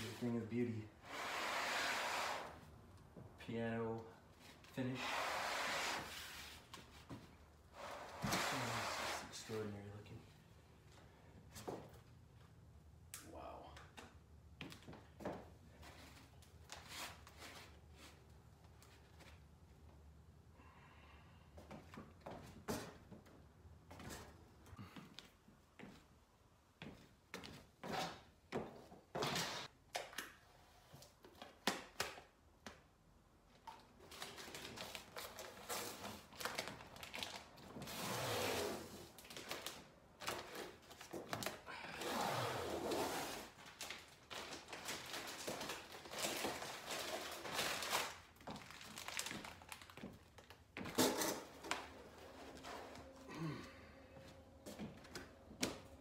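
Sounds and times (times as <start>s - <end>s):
packaging rustling and scraping: 34.0s - 53.2s.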